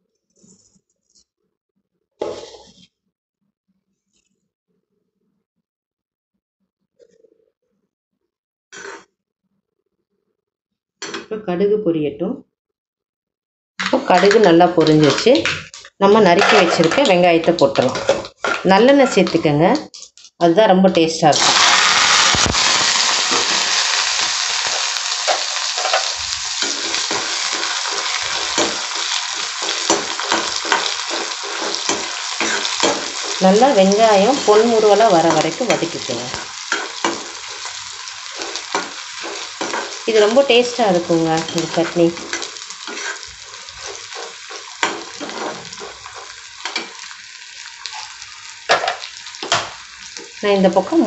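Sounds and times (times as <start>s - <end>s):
spoon scraping a pan: 2.2s - 2.9s, 8.8s - 9.1s, 13.8s - 20.3s, 22.4s - 50.4s
onions sizzling in a pan: 21.3s - 51.0s.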